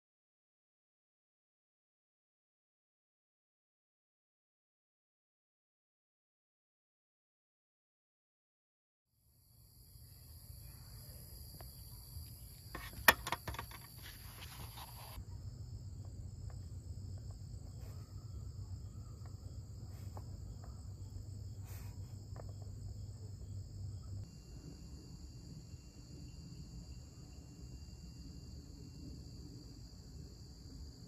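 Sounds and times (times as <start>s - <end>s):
night insects trilling: 9.3s - 31.0s
sharp clicks and handling: 12.8s - 15.2s.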